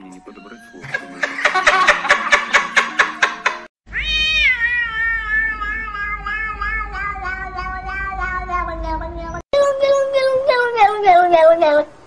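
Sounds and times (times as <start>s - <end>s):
music: 0.0s - 3.7s
man laughing in rapid bursts: 0.8s - 3.7s
cat meowing: 3.9s - 11.9s.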